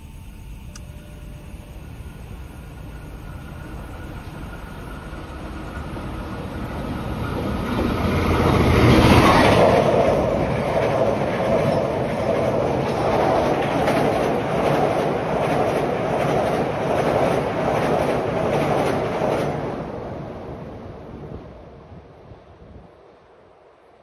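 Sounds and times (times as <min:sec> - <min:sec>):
train rumble passing: 0:00.0 - 0:24.0
wheels clacking on rails: 0:02.1 - 0:20.2.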